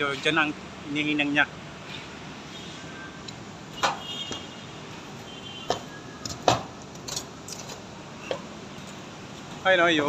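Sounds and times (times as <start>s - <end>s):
steady background noise: 0.0s - 10.0s
sharp knocks: 3.8s - 4.5s, 5.6s - 6.7s.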